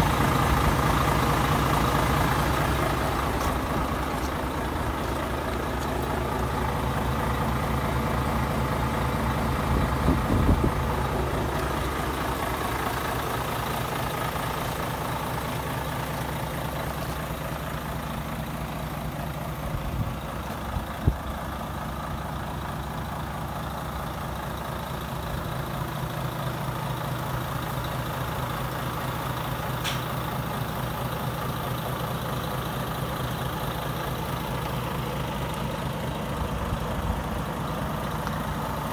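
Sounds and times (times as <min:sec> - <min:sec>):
diesel engine idling: 0:00.0 - 0:38.9
sharp click: 0:29.8 - 0:30.1.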